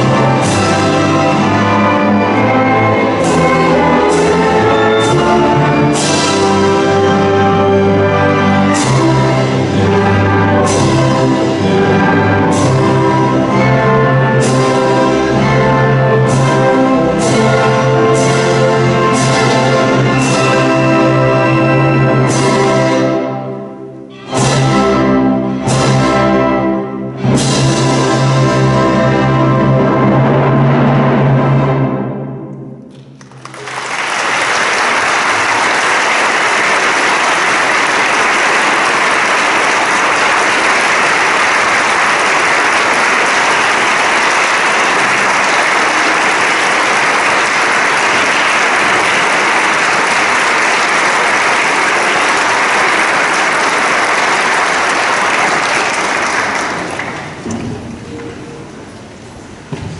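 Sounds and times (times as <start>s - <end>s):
audience applause: 33.1s - 57.5s.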